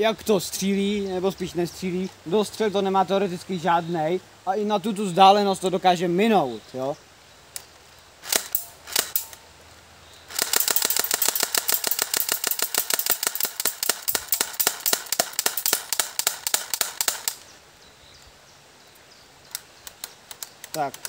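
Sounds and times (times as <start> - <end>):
airsoft gun firing clicks: 8.2 - 9.4, 10.3 - 17.4.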